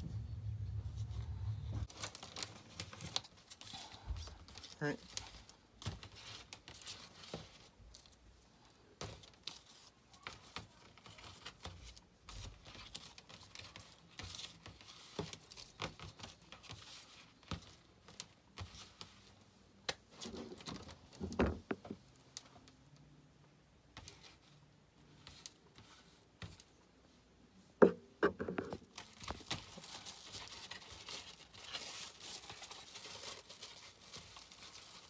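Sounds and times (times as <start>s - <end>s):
plastic tape crinkling: 1.7s - 8.2s, 28.6s - 35.0s.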